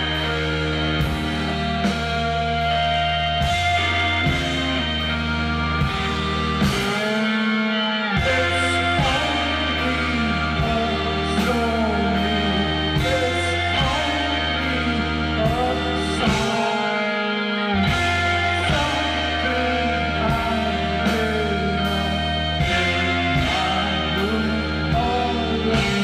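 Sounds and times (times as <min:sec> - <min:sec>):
drum kit beat: 0:00.0 - 0:26.0
keyboard and bass notes: 0:00.0 - 0:26.0
man singing: 0:06.6 - 0:26.0.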